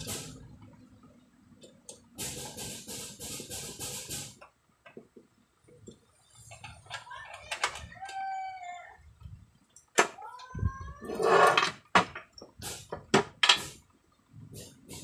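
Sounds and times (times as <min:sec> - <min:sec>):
rooster crowing: 0:07.9 - 0:09.0.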